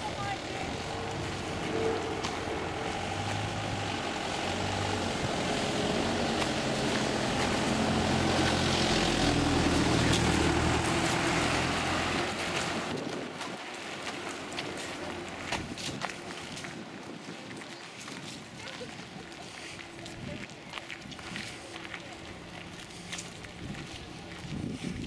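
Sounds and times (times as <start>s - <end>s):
engine drone passing by: 0.0s - 15.6s.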